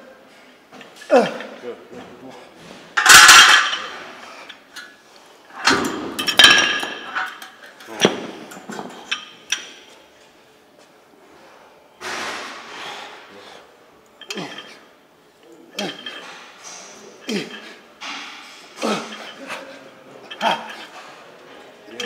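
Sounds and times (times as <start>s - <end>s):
metal dumbbells clanking: 3.0s - 4.0s, 5.5s - 9.9s, 14.2s - 14.9s, 15.7s - 22.0s.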